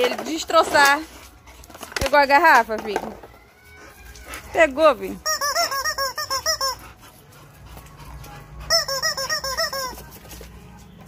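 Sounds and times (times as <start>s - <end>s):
rubber chicken toy squeaking: 5.1s - 6.8s, 8.7s - 10.2s.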